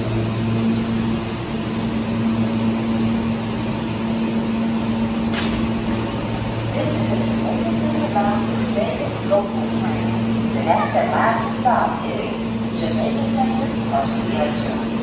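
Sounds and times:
train equipment humming: 0.0s - 15.0s.

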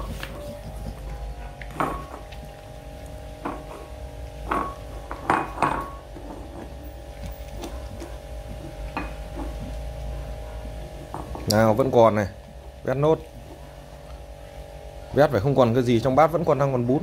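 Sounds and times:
dog eating from bowl: 0.0s - 14.2s
bowl clinking on tile floor: 1.6s - 2.4s, 4.5s - 6.1s.

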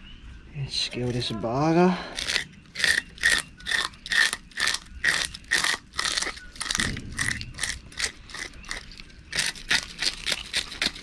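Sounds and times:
knife scraping fish scales: 2.1s - 11.0s.

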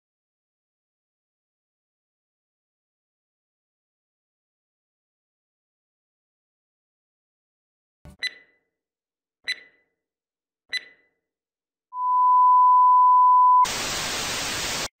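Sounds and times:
short high beeps: 8.2s - 8.5s, 10.7s - 11.0s
static hiss: 13.6s - 14.9s.

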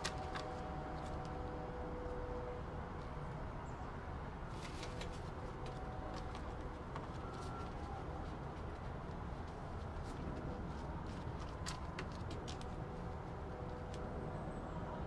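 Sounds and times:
banknotes crinkling and snapping: 0.0s - 1.4s, 4.5s - 14.1s.

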